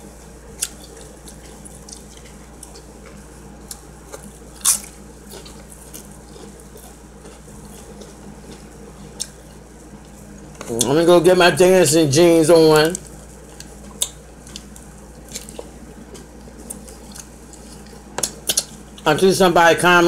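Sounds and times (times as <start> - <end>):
steady low hum: 0.0 - 20.0
chewing clicks: 0.6 - 10.9, 12.8 - 19.0.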